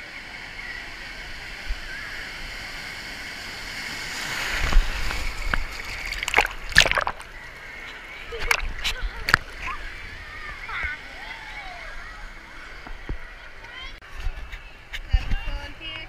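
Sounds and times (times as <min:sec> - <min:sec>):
wave rushing in pool: 0:00.0 - 0:14.0
sharp water splashes: 0:02.0 - 0:09.7.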